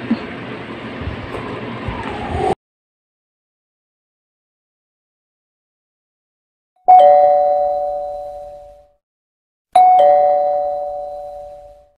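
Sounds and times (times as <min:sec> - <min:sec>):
two-tone doorbell chime: 0:06.9 - 0:09.0, 0:09.8 - 0:12.0.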